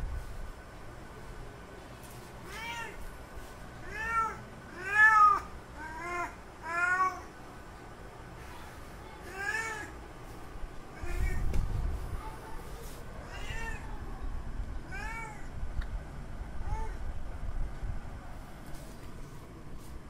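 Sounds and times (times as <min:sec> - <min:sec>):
cat meowing: 0:02.4 - 0:03.0, 0:03.8 - 0:07.3, 0:13.2 - 0:14.0, 0:14.8 - 0:15.5
low rumbling noise: 0:07.4 - 0:20.0.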